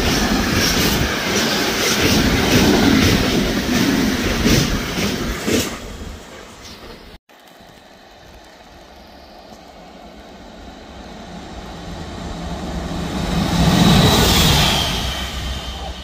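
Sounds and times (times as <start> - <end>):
electric locomotive passing: 0.0 - 16.0
wheels rushing on track: 0.0 - 16.0.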